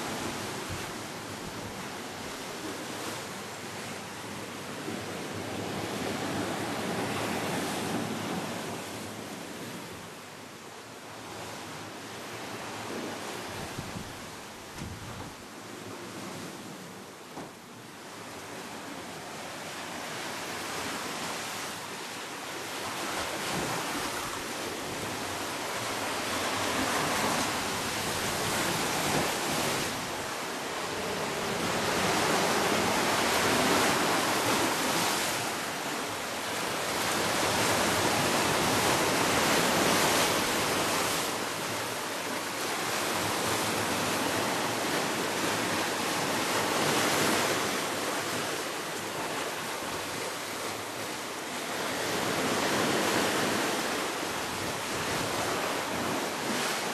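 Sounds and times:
sea waves breaking over rocks: 0:18.1 - 0:56.9.

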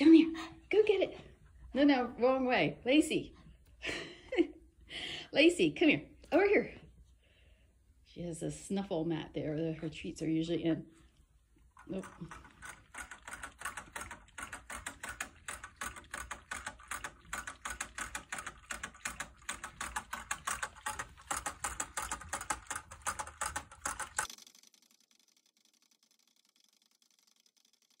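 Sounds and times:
dog licking bottle nozzle: 0:11.9 - 0:24.4.

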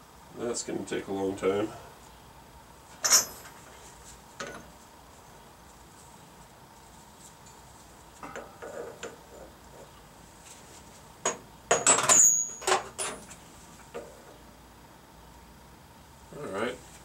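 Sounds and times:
metal tools clinking: 0:03.0 - 0:03.6, 0:08.2 - 0:09.5, 0:11.7 - 0:13.4.

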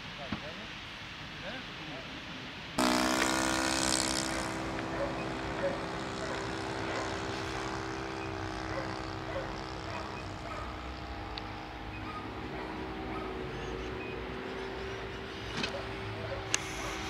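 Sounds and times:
model aircraft engine and propeller: 0:02.8 - 0:17.0
hiss: 0:16.4 - 0:17.0.

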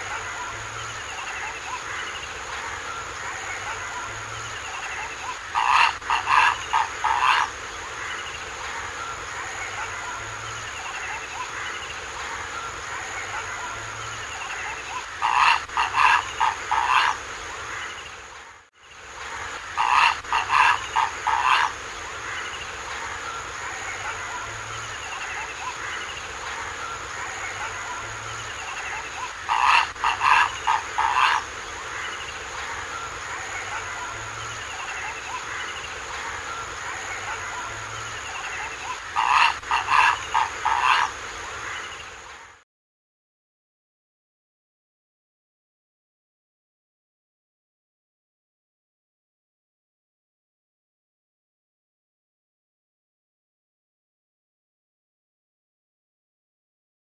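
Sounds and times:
faint chirps: 0:00.0 - 0:42.6
steady high hiss: 0:00.0 - 0:42.6
heron harsh croaking calls: 0:05.5 - 0:07.6, 0:15.2 - 0:17.2, 0:19.7 - 0:21.8, 0:28.8 - 0:32.1, 0:38.4 - 0:41.8.

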